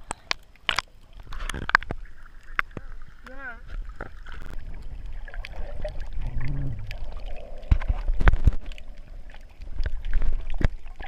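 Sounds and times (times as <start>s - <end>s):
underwater rumble with bubbling: 0.0s - 11.0s
brief low hum: 6.2s - 7.1s.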